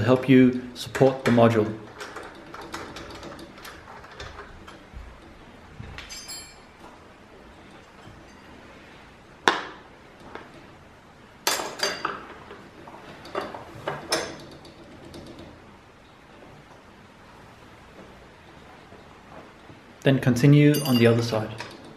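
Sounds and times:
metal clamp clinking: 6.0s - 6.9s, 20.7s - 21.9s.

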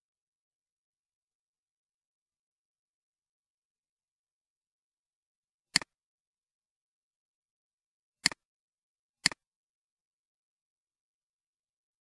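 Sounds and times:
computer mouse clicks: 5.7s - 6.0s, 8.2s - 8.4s, 9.2s - 9.5s.

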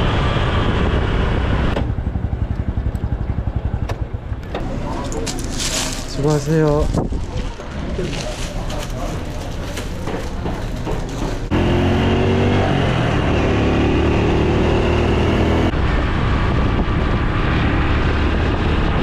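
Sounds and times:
motorcycle engine accelerating: 0.0s - 6.4s, 7.0s - 19.0s
wind rush on microphone: 6.5s - 8.0s, 15.7s - 19.0s.

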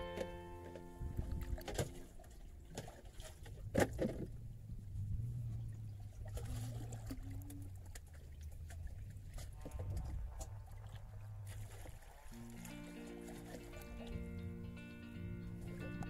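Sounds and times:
water sloshing against boat hull: 0.0s - 14.3s
steady low rumble: 3.6s - 6.4s.

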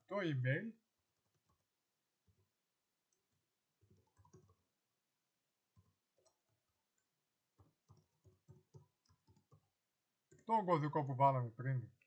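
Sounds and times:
computer keyboard clicks: 3.9s - 4.6s, 7.6s - 9.6s.

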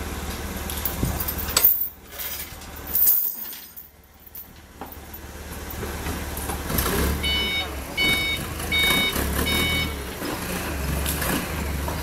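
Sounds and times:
low engine hum: 0.0s - 12.0s
metal clanking and clinking: 0.7s - 6.0s.

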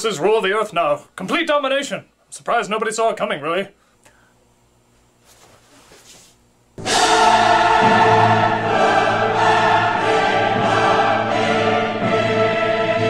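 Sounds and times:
dramatic choral music with orchestra: 6.8s - 13.0s.

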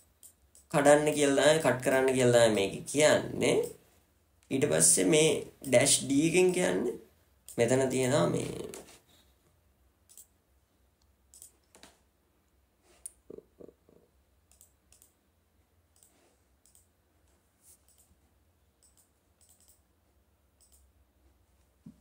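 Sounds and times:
computer mouse clicks: 0.0s - 0.7s, 10.1s - 10.4s, 11.3s - 12.0s, 14.5s - 15.2s, 15.9s - 16.9s, 17.7s - 18.2s, 18.8s - 19.9s, 20.6s - 20.9s.

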